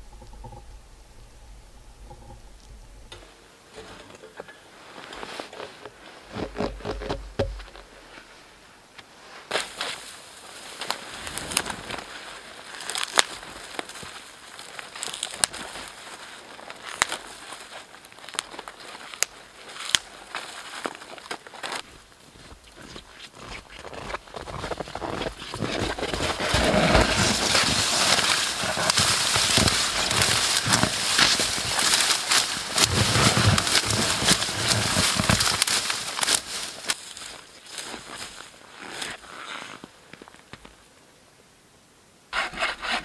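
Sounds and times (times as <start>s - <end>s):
branches rustling: 0.0s - 40.8s
twigs snapping and crackling: 10.7s - 21.9s, 25.1s - 39.2s.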